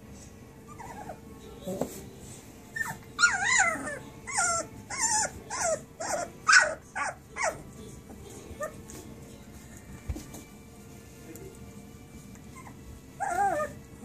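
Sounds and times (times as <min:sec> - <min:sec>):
puppies whining and squealing: 0:00.6 - 0:01.8, 0:02.5 - 0:09.0, 0:12.4 - 0:14.0.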